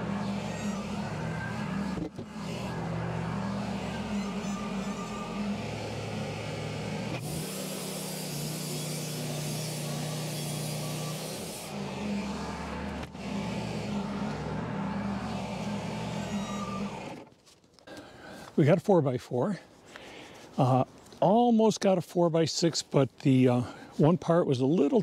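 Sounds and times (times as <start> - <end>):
sawmill engine droning: 0.0 - 17.3.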